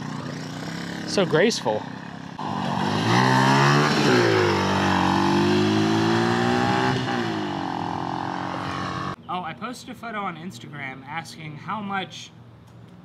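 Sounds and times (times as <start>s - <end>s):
go-kart engine revving: 0.0s - 9.2s.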